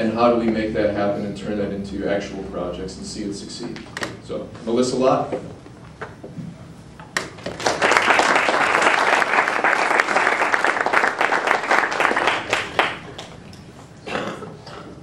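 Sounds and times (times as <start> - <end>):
audience applauding: 7.5 - 13.6.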